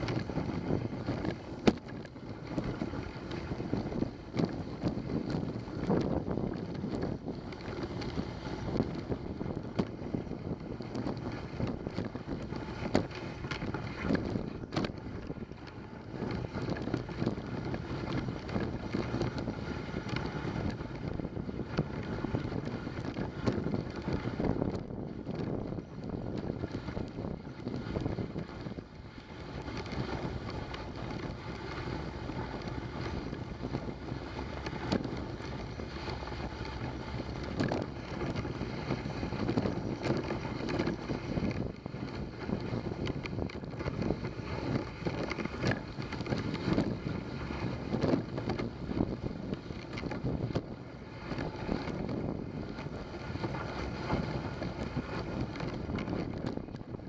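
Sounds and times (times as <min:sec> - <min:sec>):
sled runners scraping on snow: 0:00.0 - 0:57.0
wind buffeting microphone: 0:00.0 - 0:57.0.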